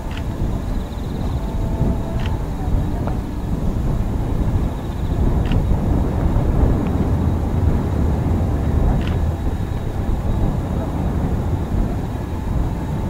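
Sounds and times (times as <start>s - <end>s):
strong wind buffeting microphone: 0.0s - 13.0s.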